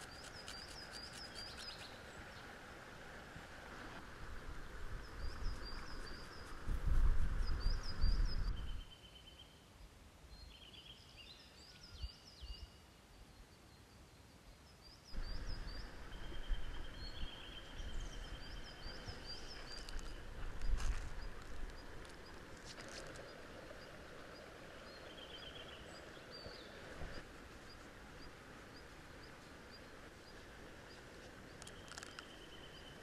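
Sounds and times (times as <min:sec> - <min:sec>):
small birds chirping: 0:00.0 - 0:02.5, 0:05.0 - 0:09.6, 0:10.3 - 0:33.0
wind rumble on microphone: 0:03.3 - 0:08.9, 0:15.2 - 0:27.3.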